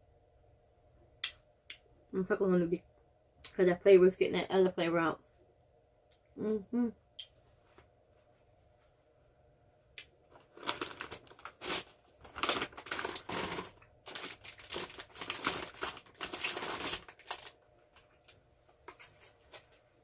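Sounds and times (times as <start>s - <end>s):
plastic wrapper crinkling: 10.3s - 19.8s.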